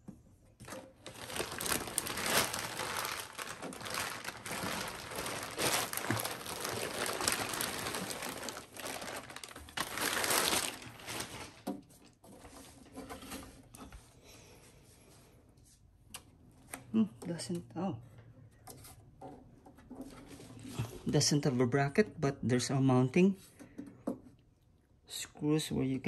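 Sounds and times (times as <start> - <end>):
plastic bag crinkling: 0.7 - 11.7.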